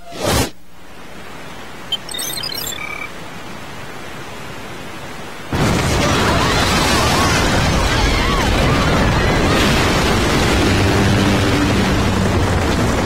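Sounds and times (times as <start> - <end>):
waterfall roaring: 5.9 - 13.0.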